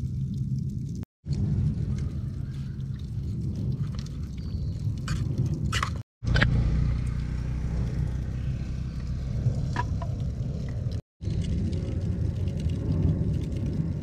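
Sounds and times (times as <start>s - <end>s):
wind buffeting microphone: 6.6s - 14.0s.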